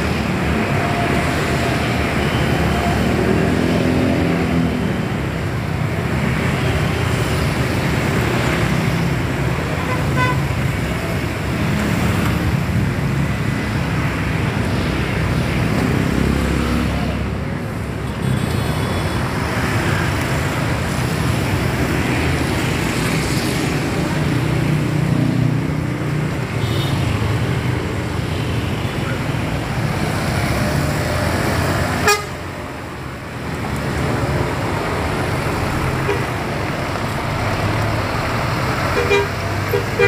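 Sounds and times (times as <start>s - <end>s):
road traffic noise: 0.0s - 40.0s
bus diesel engine: 28.9s - 40.0s.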